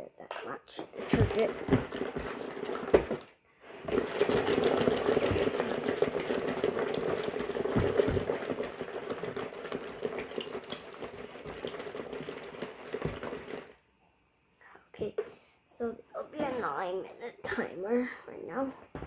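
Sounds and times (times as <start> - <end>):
washing machine motor hum: 0.7 - 13.8
water churning and sloshing: 0.8 - 13.8.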